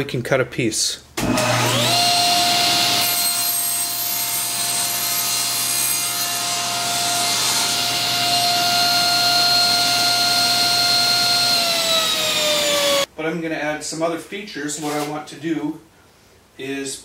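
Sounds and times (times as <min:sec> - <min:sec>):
saw blade cutting wood: 0:01.2 - 0:13.1
saw blade spinning down: 0:01.2 - 0:13.1
table saw whining: 0:01.2 - 0:13.1.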